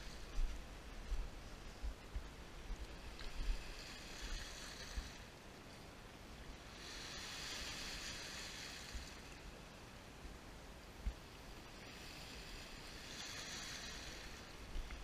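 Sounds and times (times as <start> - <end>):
wind rumble on microphone: 0.0 - 5.5.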